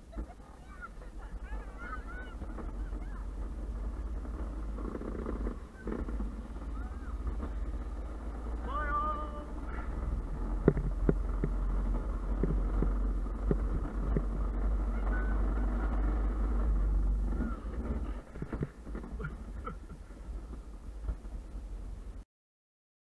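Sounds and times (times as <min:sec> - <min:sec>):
cart knocks and rattles: 0:00.0 - 0:09.0, 0:09.6 - 0:21.8
cart rolling rumble: 0:00.0 - 0:22.2
wind buffeting microphone: 0:09.5 - 0:22.2.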